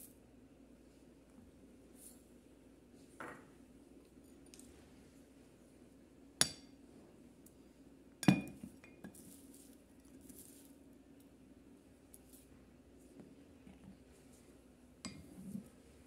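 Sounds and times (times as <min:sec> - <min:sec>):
glass dishes clinking on table: 0:08.2 - 0:08.6.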